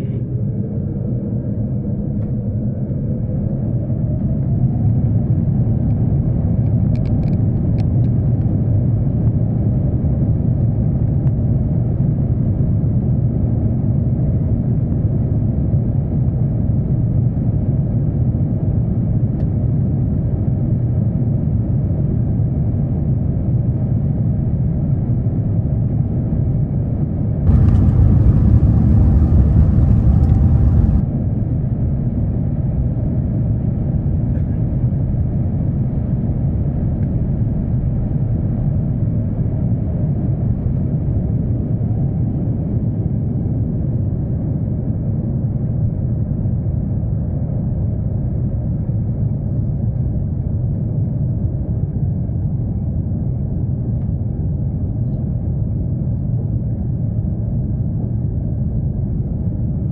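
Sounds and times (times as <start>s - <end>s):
jet engines deep rumble: 0.0s - 59.9s
light cabin rattles: 27.5s - 31.0s.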